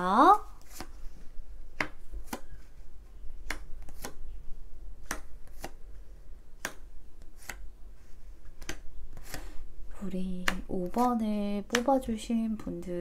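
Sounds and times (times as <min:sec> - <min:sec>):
low steady hum: 0:00.0 - 0:13.0
cards snapping: 0:03.4 - 0:04.2, 0:05.0 - 0:05.8, 0:06.6 - 0:07.6.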